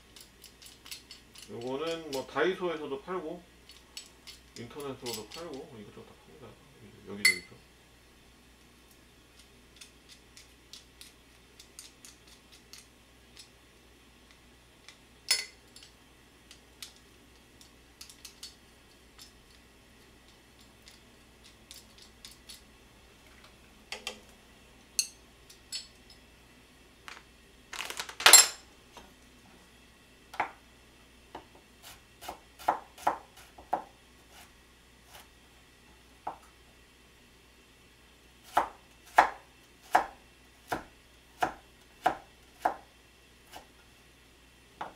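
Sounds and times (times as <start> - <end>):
utensils set down on counter: 15.3 - 15.6, 27.8 - 28.6
utensils tapping metal pot: 15.3 - 15.9, 25.0 - 26.0.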